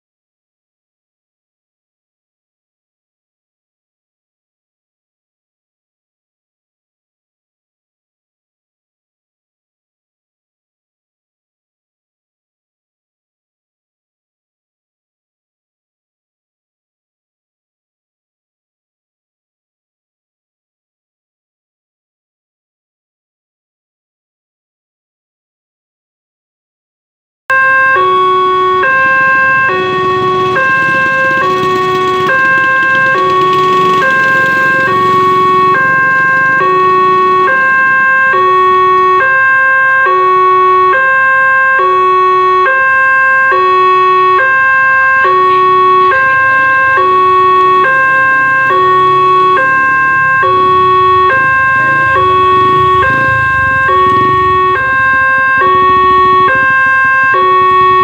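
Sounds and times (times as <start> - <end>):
level-crossing alarm two tones: 27.5 - 58.0.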